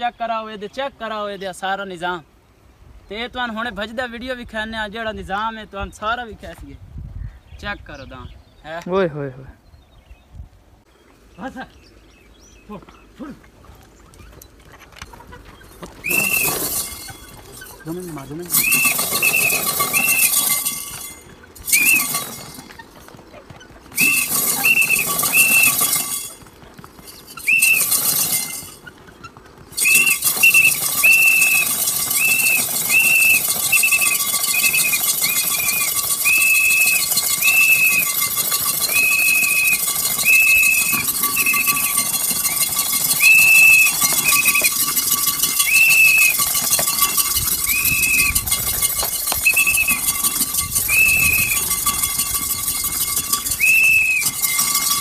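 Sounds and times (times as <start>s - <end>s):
short high whistle notes: 16.0s - 16.9s, 18.5s - 20.8s, 21.7s - 22.3s, 24.0s - 26.2s, 27.4s - 28.4s, 29.8s - 38.2s, 38.8s - 44.8s, 45.6s - 46.4s, 47.5s - 52.2s, 53.5s - 55.0s.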